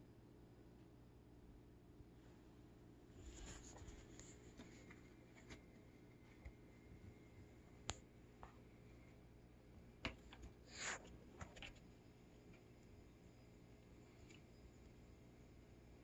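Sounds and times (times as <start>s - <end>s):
scratchy rustle: 3.2s - 5.7s.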